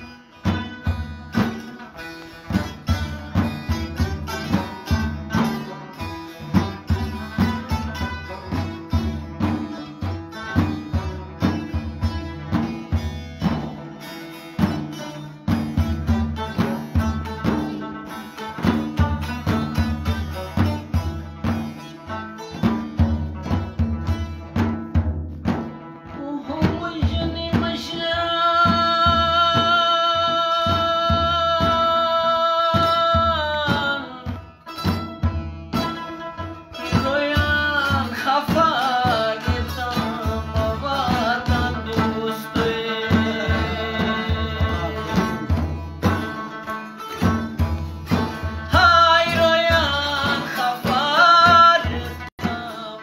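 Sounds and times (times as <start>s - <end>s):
man singing: 0.0s - 1.6s, 26.0s - 34.6s, 36.8s - 46.3s, 48.0s - 53.0s
frame drum strokes: 0.0s - 53.0s
plucked lute: 0.0s - 53.0s.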